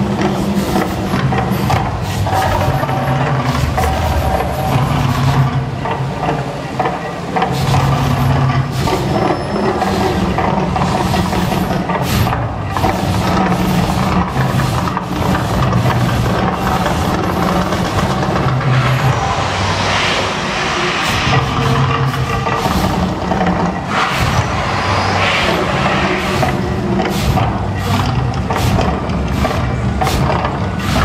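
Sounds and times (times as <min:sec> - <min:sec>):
loud deep volcano rumble: 0:02.7 - 0:31.0
gas flames whooshing: 0:13.8 - 0:30.2.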